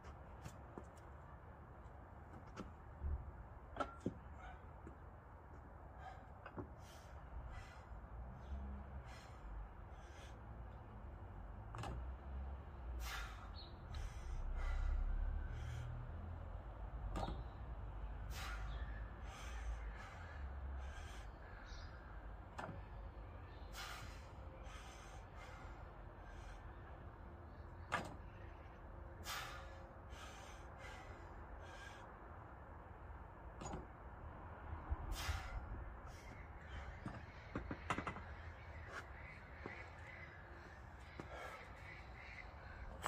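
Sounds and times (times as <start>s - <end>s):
crows cawing: 36.2s - 43.0s.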